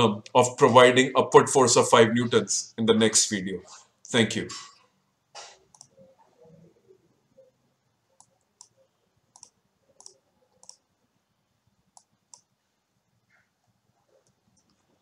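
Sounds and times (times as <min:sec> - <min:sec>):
computer mouse clicks: 0:05.4 - 0:06.2, 0:08.1 - 0:10.8, 0:11.9 - 0:12.5.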